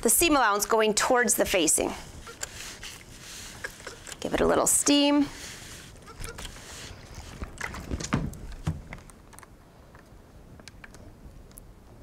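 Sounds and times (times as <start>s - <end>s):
steam iron hiss: 1.5s - 7.0s.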